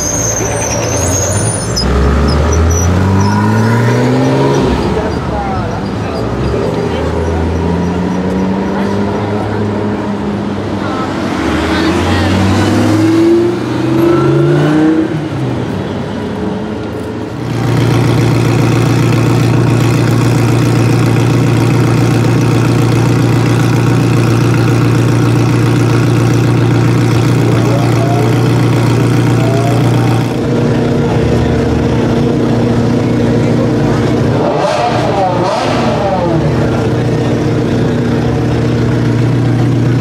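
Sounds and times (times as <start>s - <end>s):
car engine idling: 16.7s - 40.0s
sports car engine revving: 17.4s - 40.0s.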